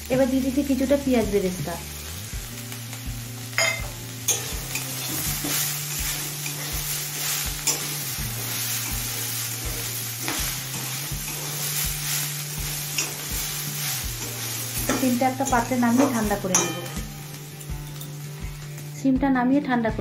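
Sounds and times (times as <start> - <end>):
food sizzling: 0.0 - 19.2
metal spatula scraping pan: 3.7 - 17.3.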